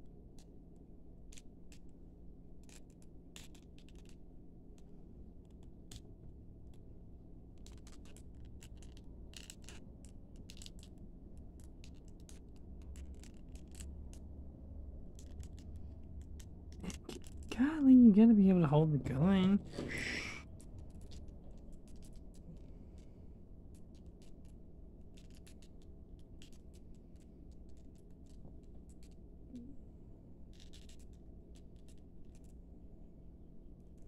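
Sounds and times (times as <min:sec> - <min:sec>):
low steady hum: 0:00.0 - 0:34.0
plastic toy clicks and scrapes: 0:11.6 - 0:14.2.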